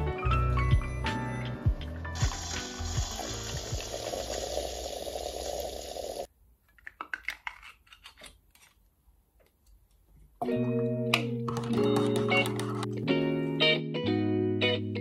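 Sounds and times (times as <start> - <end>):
coffee machine hiss and hum: 2.2 - 6.3
fingers handling small item: 6.6 - 10.3
guitar music: 10.4 - 15.0.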